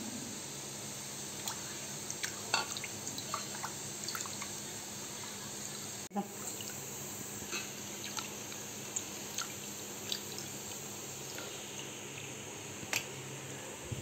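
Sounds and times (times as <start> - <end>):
water sloshing and dripping: 1.4 - 4.5, 8.0 - 11.5
wet squishes: 8.0 - 11.5.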